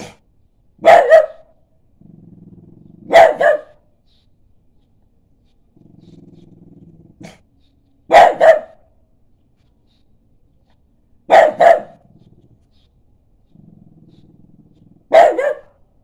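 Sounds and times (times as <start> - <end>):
dog barking: 0.8 - 1.6, 3.1 - 3.9, 8.1 - 9.0, 11.3 - 12.2, 15.1 - 15.8
dog growling: 1.9 - 3.2, 5.7 - 7.5, 13.5 - 15.2.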